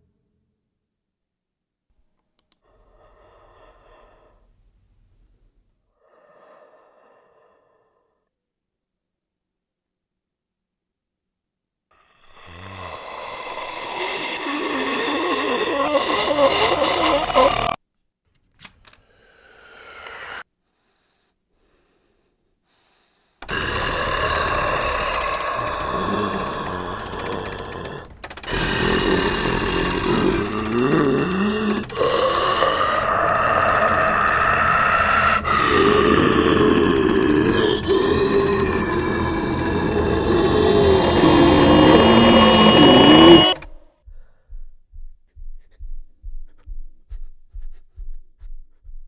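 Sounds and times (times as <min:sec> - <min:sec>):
soft clicks: 0:02.2 - 0:02.6
raspy breathing: 0:02.6 - 0:04.7, 0:05.9 - 0:08.3, 0:11.9 - 0:17.8, 0:18.9 - 0:49.0.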